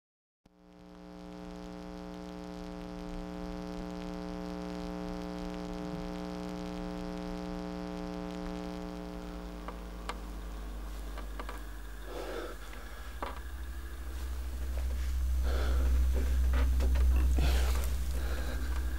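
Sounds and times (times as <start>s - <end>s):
ominous droning hum: 0.5s - 18.9s
low rumble: 9.5s - 18.9s.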